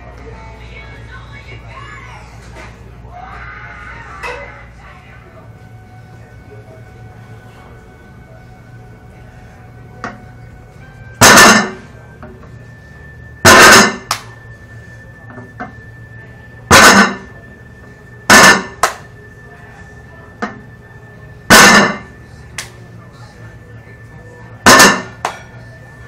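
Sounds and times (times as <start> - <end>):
barbell clanging on floor: 11.2 - 11.8, 16.7 - 17.3, 21.5 - 22.1, 24.7 - 25.4.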